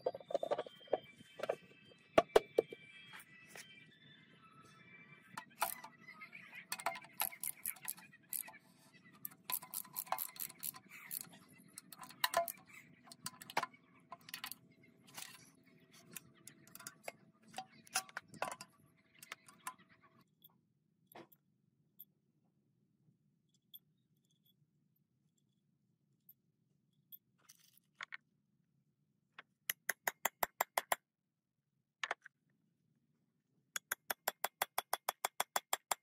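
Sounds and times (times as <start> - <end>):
ratchet wrench clicking: 9.5 - 11.3.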